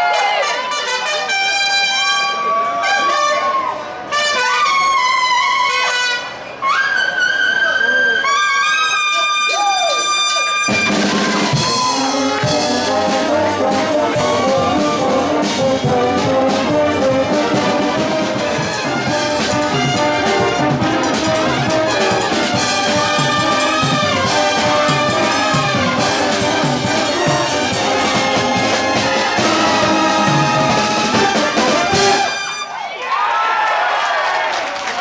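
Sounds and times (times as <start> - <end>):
trumpets: 0.0 - 32.9
bass horn: 0.1 - 32.8
congas: 8.2 - 32.7
cymbals: 10.6 - 32.8
drum kit: 10.7 - 32.6.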